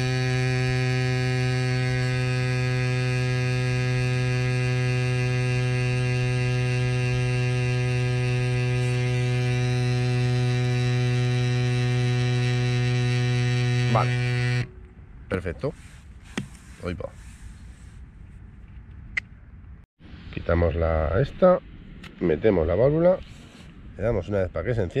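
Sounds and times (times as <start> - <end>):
electric air compressor humming: 0.0 - 14.8.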